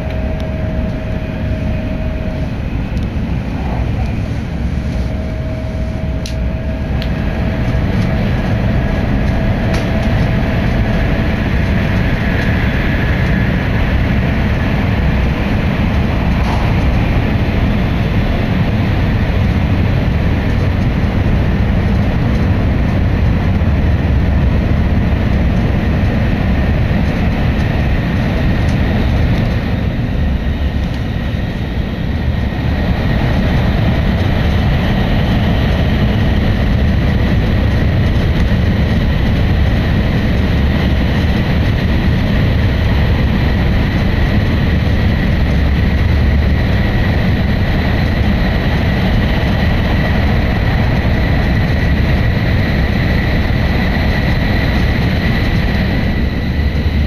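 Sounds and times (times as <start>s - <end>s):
faint high whine: 0.0s - 19.7s
train wheels rumbling on rail: 0.0s - 57.0s.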